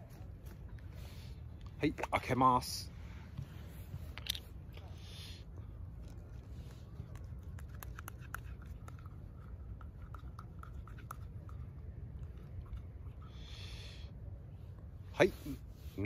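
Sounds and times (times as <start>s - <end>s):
low background rumble: 0.0s - 16.0s
fingers kneading sticky bait: 6.1s - 13.0s.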